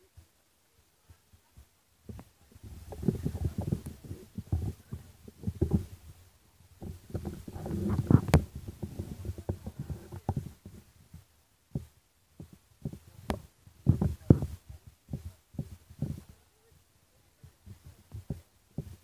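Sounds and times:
low rumbling and thumping: 2.1 - 16.4.

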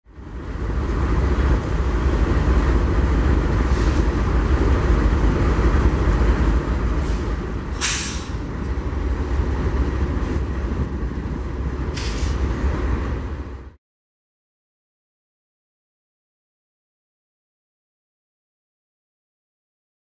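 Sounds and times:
diesel locomotive idling: 0.1 - 13.8
sharp air hiss: 7.0 - 8.4, 12.0 - 12.5.

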